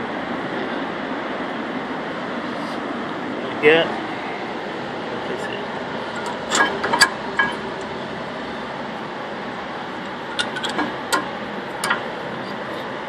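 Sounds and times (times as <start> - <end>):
brake pads clinking on metal: 6.1 - 7.8, 10.3 - 12.2.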